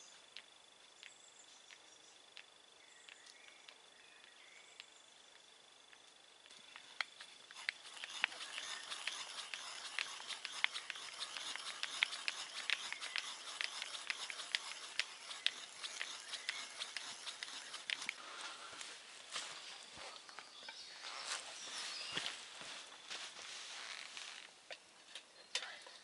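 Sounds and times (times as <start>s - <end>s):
hand drill scratching into wood: 6.5s - 18.9s, 21.0s - 22.4s, 23.8s - 24.6s.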